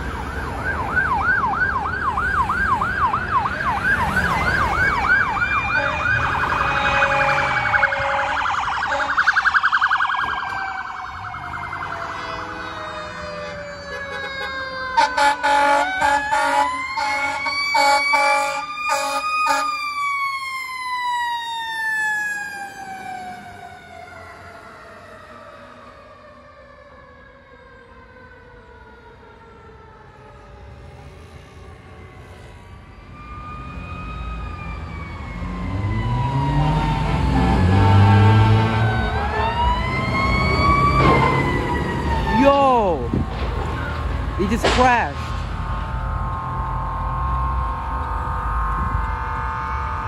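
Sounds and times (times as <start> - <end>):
emergency siren yelp and wail: 0.0 - 50.0
fire engine siren: 0.0 - 50.0
air horn blasts: 5.7 - 9.4, 12.1 - 19.8, 47.7 - 50.0.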